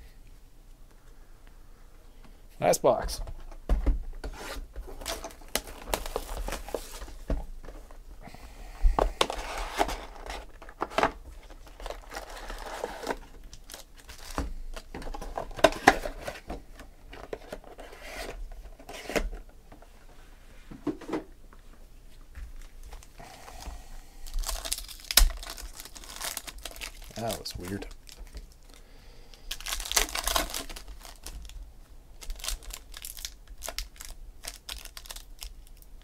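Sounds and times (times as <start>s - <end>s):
wrappers crinkling and tearing: 4.9s - 7.2s, 9.2s - 16.4s, 24.2s - 28.8s, 29.5s - 35.9s.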